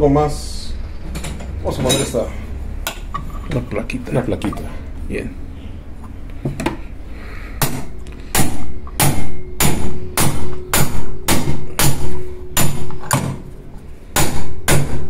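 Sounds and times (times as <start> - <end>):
hammer striking steel plate: 7.6 - 13.4, 14.2 - 15.0.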